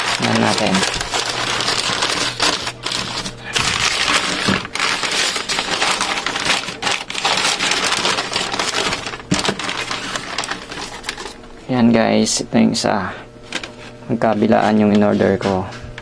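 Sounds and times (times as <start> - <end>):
newspaper crumpling: 0.0 - 11.4.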